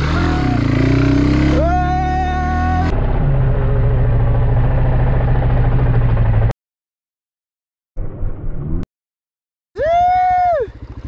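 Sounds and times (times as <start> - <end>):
motorcycle engine running: 0.0 - 6.5, 9.9 - 11.0.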